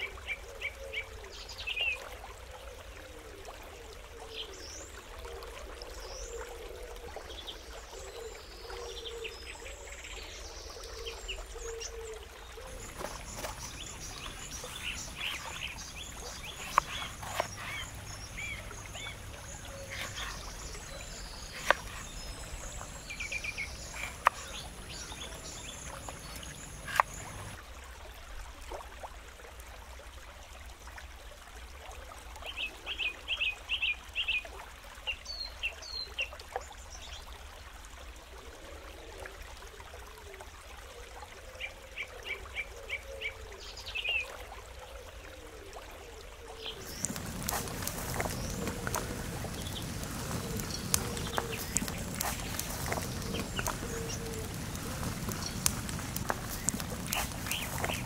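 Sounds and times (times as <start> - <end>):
even outdoor hiss: 0.0 - 58.0
birds chirping: 12.6 - 27.6, 46.6 - 58.0.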